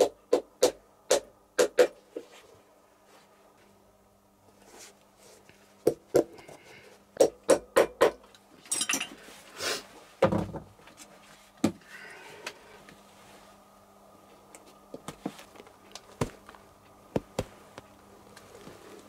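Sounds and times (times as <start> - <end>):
rustling handling noise: 12.7 - 19.0.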